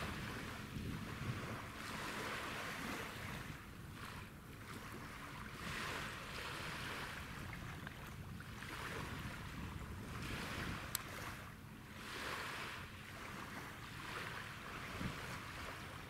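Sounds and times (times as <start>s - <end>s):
small waves lapping: 0.0s - 16.0s.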